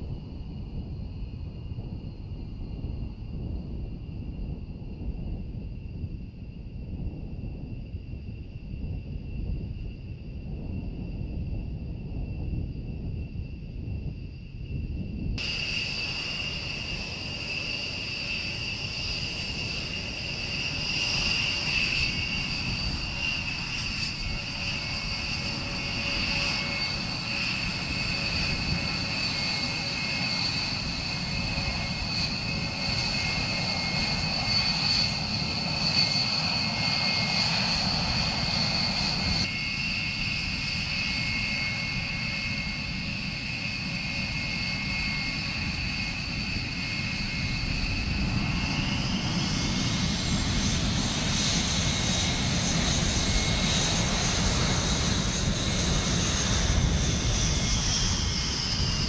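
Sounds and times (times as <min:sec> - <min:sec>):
jet engine rumble: 0:00.0 - 0:59.0
high-pitched whine: 0:12.5 - 0:59.0.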